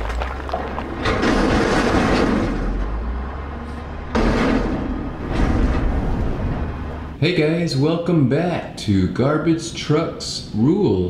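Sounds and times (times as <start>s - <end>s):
heavy truck rumbling and rattling: 0.0s - 7.2s.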